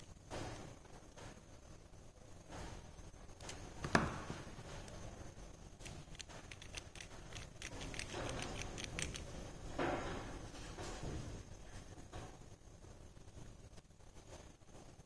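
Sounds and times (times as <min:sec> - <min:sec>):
small metal gears clicking: 0:05.8 - 0:09.3.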